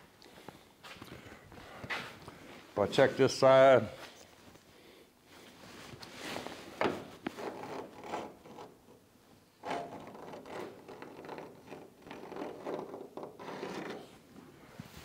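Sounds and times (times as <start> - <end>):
rubbing and scraping handling noises: 5.3 - 9.0, 9.6 - 15.0.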